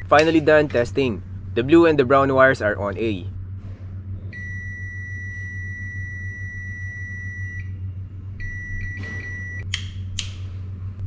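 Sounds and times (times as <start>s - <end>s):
low steady hum: 0.0s - 11.0s
multimeter high beep: 4.4s - 7.8s, 8.4s - 9.6s.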